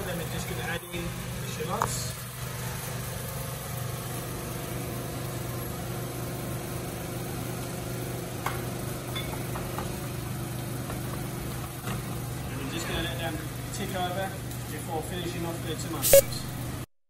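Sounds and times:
kitchen equipment hum: 0:16.0 - 0:16.9.

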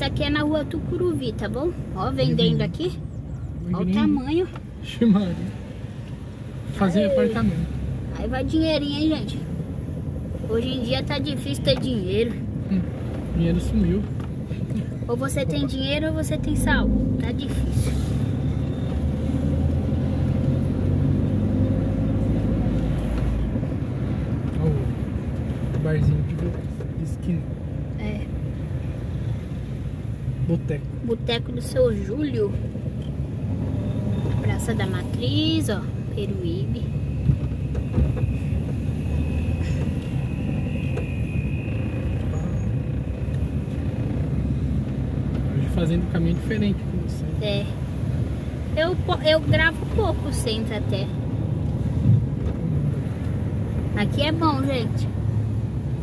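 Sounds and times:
car interior road rumble: 0:00.0 - 0:56.0.

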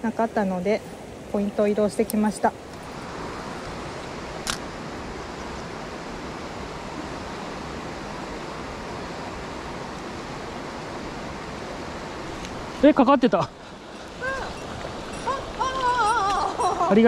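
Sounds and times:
stream rushing over stones: 0:00.1 - 0:17.0.

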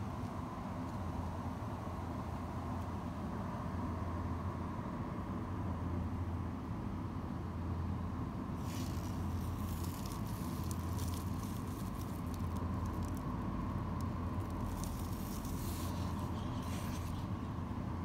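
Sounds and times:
steady low hum: 0:00.0 - 0:18.0
leaves rustling and crackling: 0:08.6 - 0:17.4.

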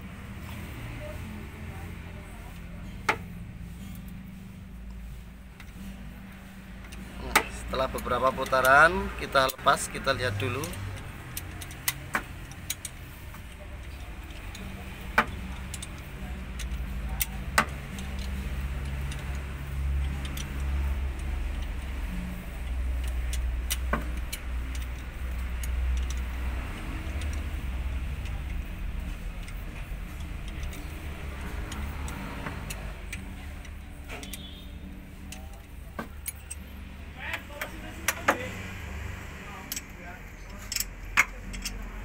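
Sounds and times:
low engine-like hum: 0:00.0 - 0:42.0
metallic socket clicks: 0:06.8 - 0:36.7, 0:39.6 - 0:41.9.

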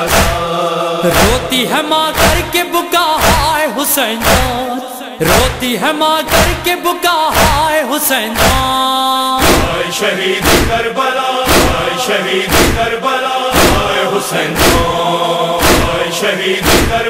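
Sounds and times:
chorus chanting lament: 0:00.0 - 0:17.0
heavy thumps: 0:09.4 - 0:09.8, 0:10.4 - 0:10.8, 0:11.5 - 0:11.9, 0:12.5 - 0:12.9, 0:13.6 - 0:14.0, 0:14.6 - 0:14.9, 0:15.6 - 0:16.0, 0:16.6 - 0:17.0.

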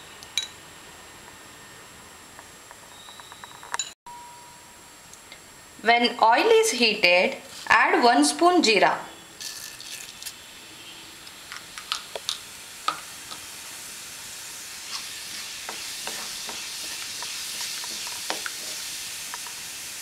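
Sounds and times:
seeds sizzling in hot oil: 0:09.1 - 0:20.0
spatula stirring seeds: 0:14.7 - 0:19.7.

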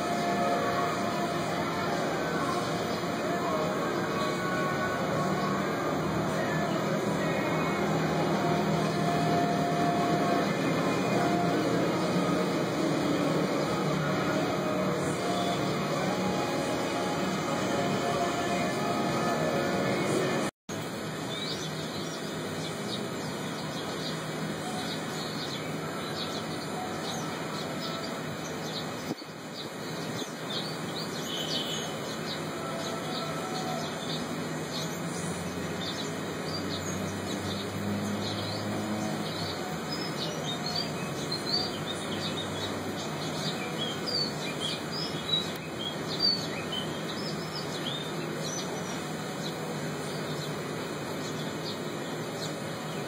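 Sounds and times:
small birds chirping: 0:21.1 - 0:53.0.

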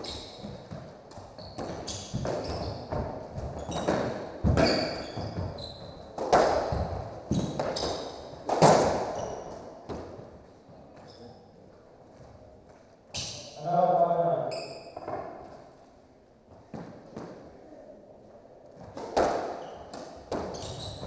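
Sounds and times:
shoes squeaking on wooden floor: 0:00.0 - 0:10.2, 0:19.5 - 0:21.0
squash ball hit by rackets: 0:01.6 - 0:09.2, 0:18.9 - 0:21.0.

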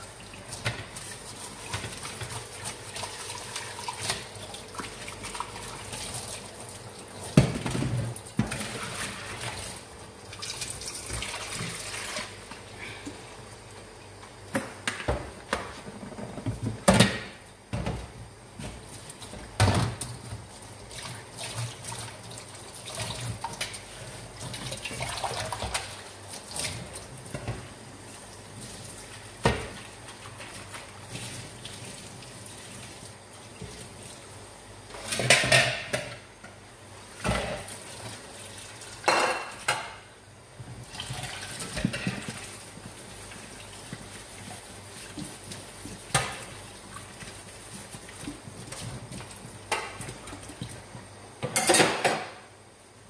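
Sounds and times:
plates and metal bowls clattering: 0:51.4 - 0:52.4.

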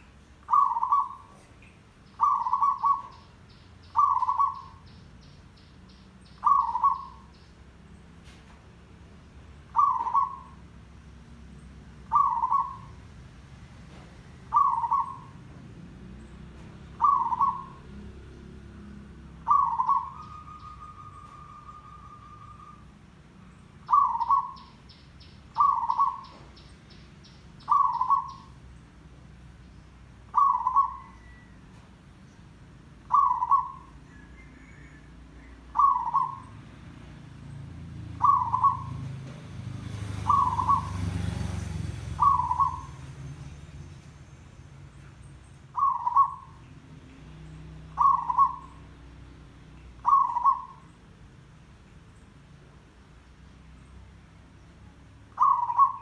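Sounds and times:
dove cooing: 0:00.4 - 0:01.6, 0:02.2 - 0:03.3, 0:03.9 - 0:04.9, 0:06.4 - 0:07.3, 0:09.7 - 0:10.7, 0:12.0 - 0:13.0, 0:14.4 - 0:15.5, 0:16.6 - 0:18.0, 0:19.4 - 0:22.9, 0:23.8 - 0:24.8, 0:25.5 - 0:26.5, 0:27.6 - 0:28.6, 0:30.3 - 0:31.6, 0:33.0 - 0:36.5, 0:38.1 - 0:39.4, 0:40.2 - 0:41.1, 0:41.9 - 0:43.2, 0:45.7 - 0:46.6, 0:47.9 - 0:48.9, 0:50.0 - 0:50.9, 0:55.3 - 0:56.0.

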